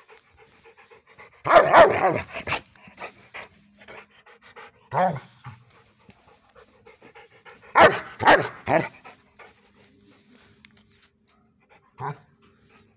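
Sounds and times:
dog panting: 0.0s - 10.4s.

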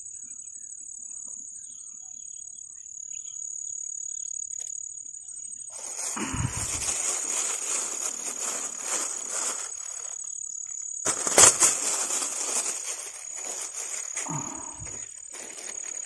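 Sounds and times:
close rustling and crackling: 5.7s - 10.2s, 11.1s - 16.0s.

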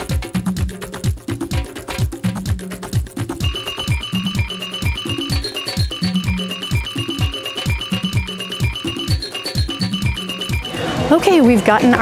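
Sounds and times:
upbeat electronic music: 0.0s - 12.0s.

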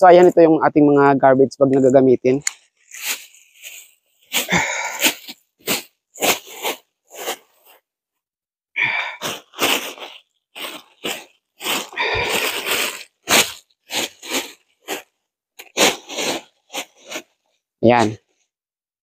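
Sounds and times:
plastic garbage bags rustling: 2.8s - 7.7s, 9.0s - 17.3s.

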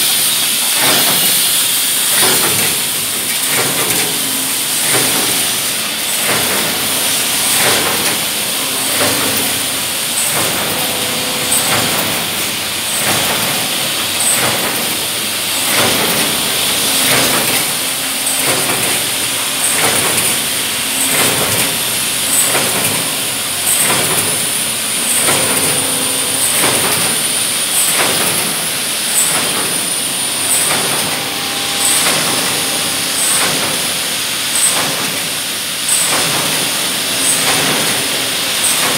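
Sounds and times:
machine clacking: 0.0s - 38.9s
high whine: 6.5s - 34.5s.

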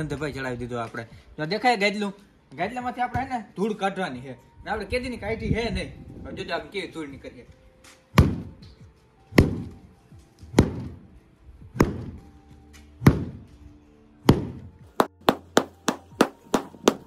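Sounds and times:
stick beating a mattress: 14.3s - 17.0s.

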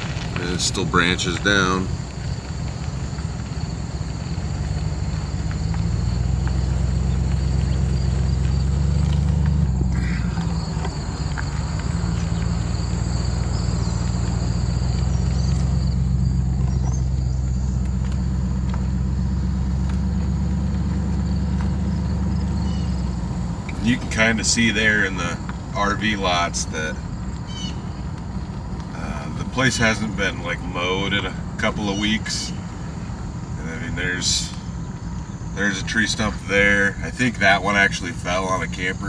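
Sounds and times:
truck engine and tyres droning: 0.0s - 39.0s
high insect buzz: 3.5s - 23.5s.

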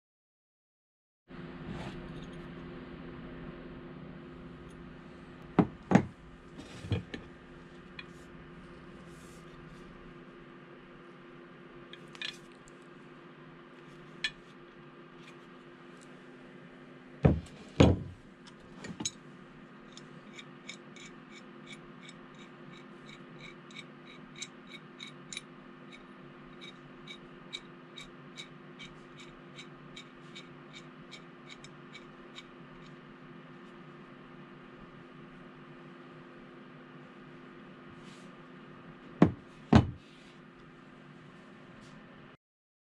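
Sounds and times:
loud metal knocks: 5.6s - 6.2s, 39.2s - 40.0s.

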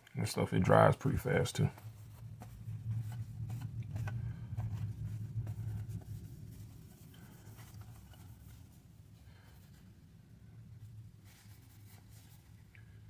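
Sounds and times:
low steady hum: 0.0s - 13.0s
paper towel scrubbing metal: 1.1s - 9.9s.

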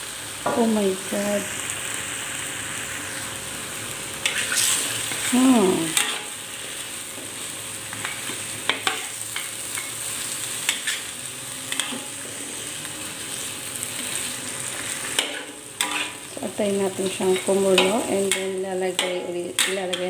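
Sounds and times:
food sizzling in a wok: 0.0s - 20.0s
spatula clinking and scraping pan: 4.2s - 6.4s, 7.9s - 11.1s, 11.7s - 12.2s, 15.0s - 16.3s, 17.0s - 20.0s.

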